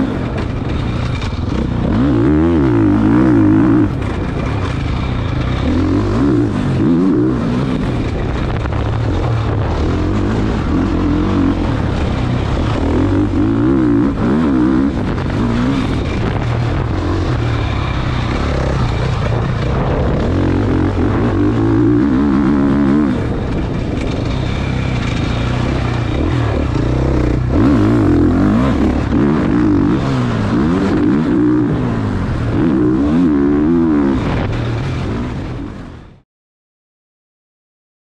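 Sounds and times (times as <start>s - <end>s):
motocross bike engine revving: 0.0s - 35.8s.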